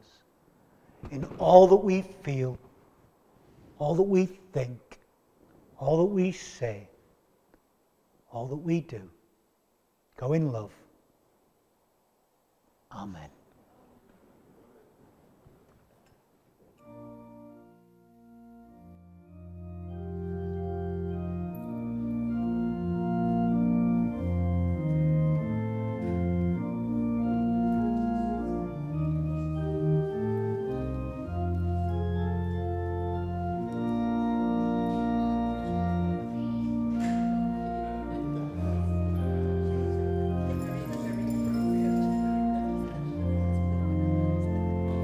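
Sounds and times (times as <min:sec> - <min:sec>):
church organ playing chords: 0:16.8 - 0:45.0.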